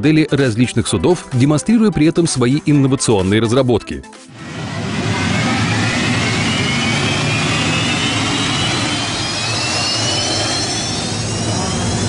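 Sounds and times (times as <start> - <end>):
turbine engine spooling up: 4.4 - 12.0.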